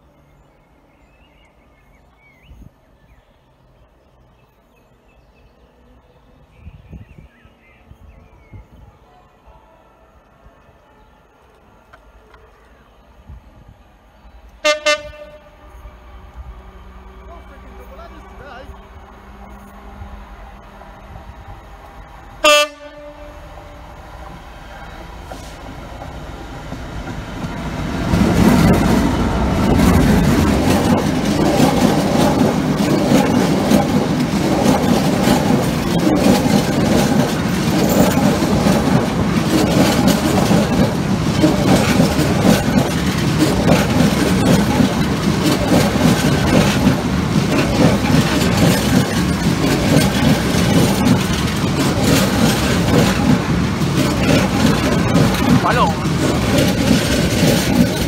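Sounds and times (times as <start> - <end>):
diesel locomotive engine passing: 0.0 - 58.0
locomotive horn blast: 14.6 - 16.1, 22.4 - 23.8
train wagons clattering over rail joints: 25.0 - 58.0.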